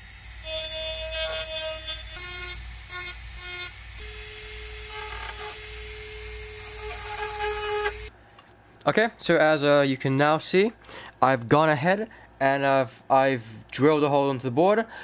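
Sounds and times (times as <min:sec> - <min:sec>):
rotary tool motor whine: 0:00.0 - 0:08.1.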